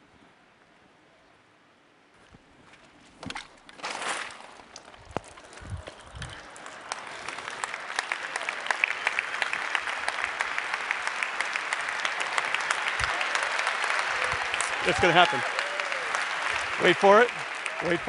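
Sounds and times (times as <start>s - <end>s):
audience applauding: 5.6s - 18.0s.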